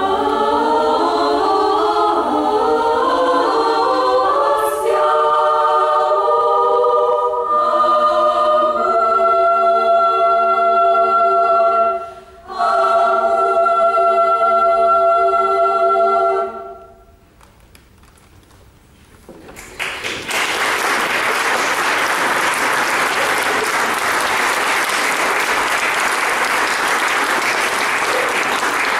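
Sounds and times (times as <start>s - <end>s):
female choir singing a cappella: 0.0s - 17.1s
audience applause: 19.4s - 28.9s.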